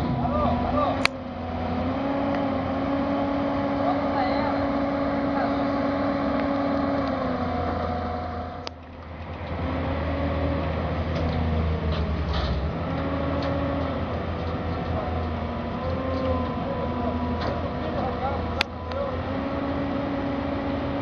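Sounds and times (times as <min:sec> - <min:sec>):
heavy machinery engines running: 0:00.0 - 0:21.0.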